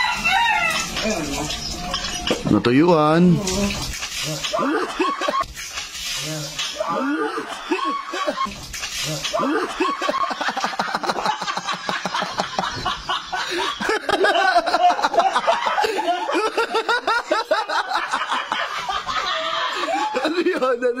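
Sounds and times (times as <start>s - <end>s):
men laughing hard: 4.4s - 5.4s, 6.7s - 8.6s, 9.2s - 21.0s.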